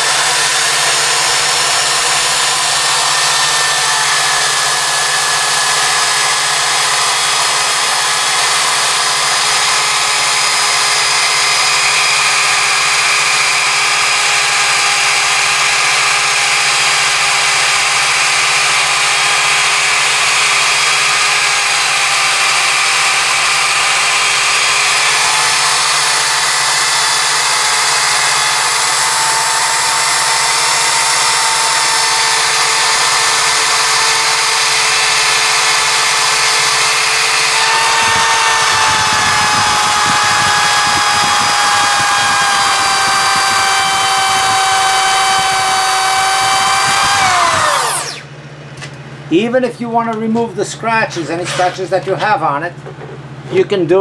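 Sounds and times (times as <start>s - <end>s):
electric drill motor whine: 0.0s - 48.3s.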